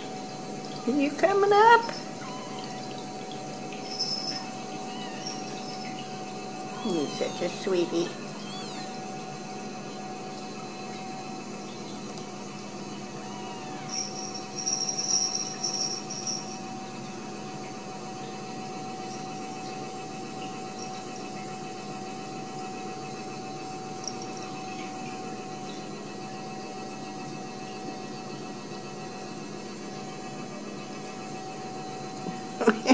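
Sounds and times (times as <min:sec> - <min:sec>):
high fluttering chirp: 0:00.0 - 0:09.0, 0:12.9 - 0:16.6
constant mid-pitched tone: 0:00.0 - 0:12.1, 0:13.4 - 0:17.0, 0:23.2 - 0:26.0
background hum and hiss: 0:00.0 - 0:32.9.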